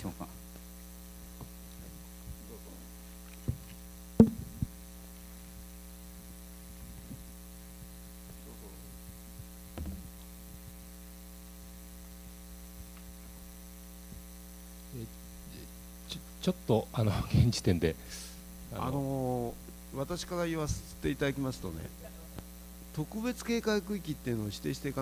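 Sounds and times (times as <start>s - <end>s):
electrical mains hum: 0.0s - 25.0s
brief knocks: 4.2s - 4.7s.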